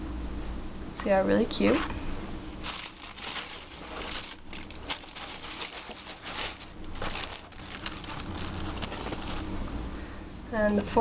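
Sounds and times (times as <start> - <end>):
cardboard and paper rustling: 2.6 - 9.7.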